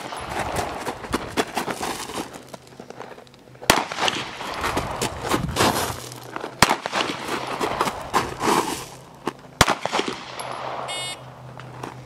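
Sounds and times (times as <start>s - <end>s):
pistol shots: 3.6s - 4.5s, 6.6s - 7.8s, 9.6s - 11.0s.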